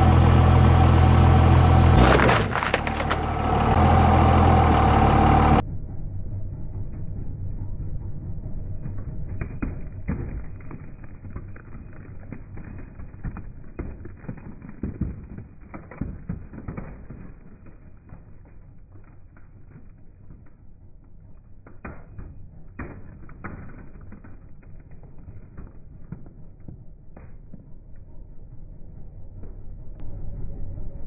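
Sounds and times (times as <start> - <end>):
tyre crunching over gravel: 1.9 - 3.7
screen cracking: 2.0 - 3.3.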